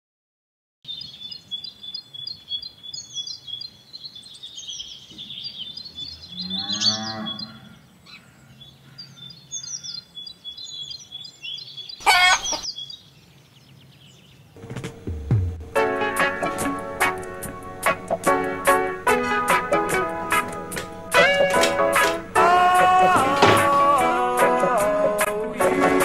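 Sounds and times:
small birds chirping: 0:00.8 - 0:15.1
cow mooing: 0:06.3 - 0:07.8
loud wavering animal call: 0:06.3 - 0:07.9.

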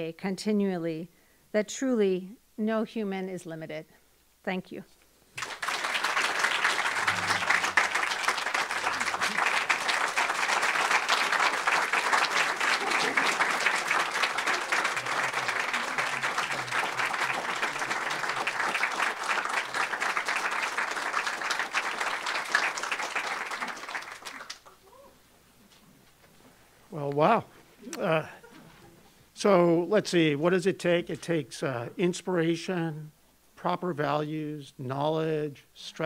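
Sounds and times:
audience applauding: 0:05.4 - 0:25.0.

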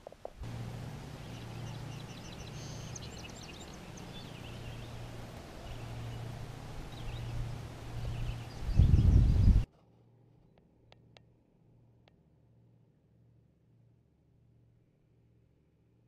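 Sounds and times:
small birds chirping: 0:00.0 - 0:09.7
steady low hum: 0:00.0 - 0:16.0.

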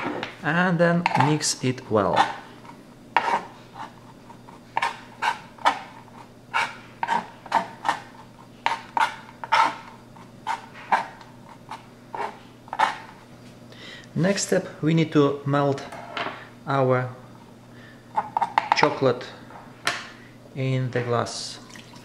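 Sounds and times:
knife chopping on cutting board: 0:03.2 - 0:03.5, 0:04.7 - 0:13.1.

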